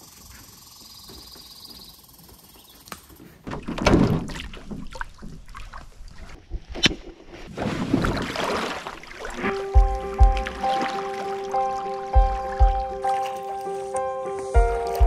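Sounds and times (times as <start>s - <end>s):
water splashing around a canoe: 3.4s - 14.0s.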